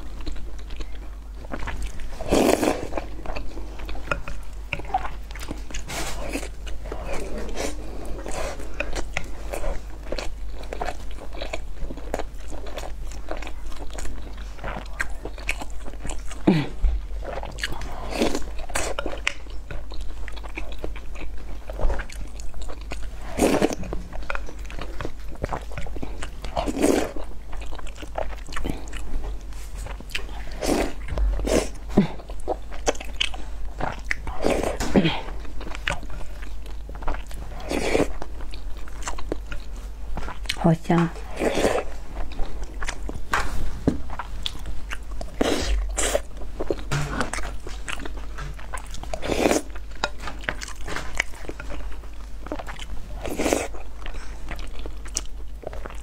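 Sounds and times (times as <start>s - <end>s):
person chewing food: 0.0s - 56.0s.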